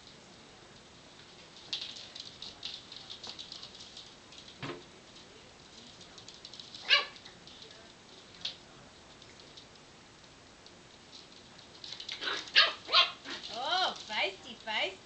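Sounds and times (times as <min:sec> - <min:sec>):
puppy claws clicking on floor: 0:01.4 - 0:14.7
puppy yip: 0:06.9 - 0:07.2.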